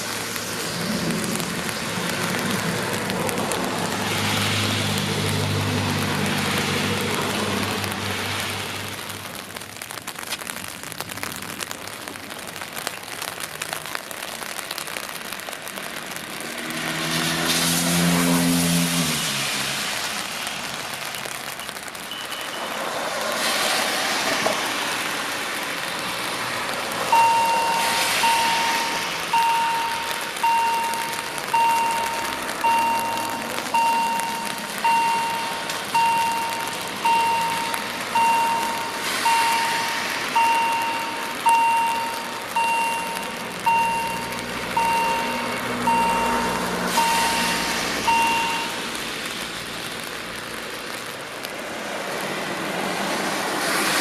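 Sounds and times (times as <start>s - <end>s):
car tyres hissing on wet road: 0.0s - 54.0s
level crossing warning beeps: 27.1s - 48.8s.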